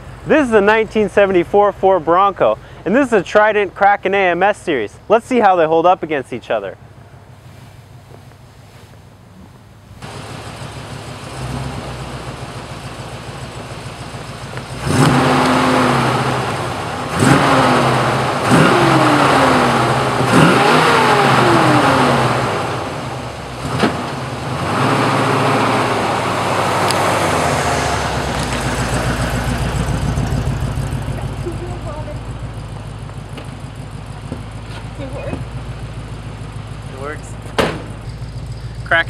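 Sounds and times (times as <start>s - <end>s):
truck engine revving: 9.3s - 39.0s.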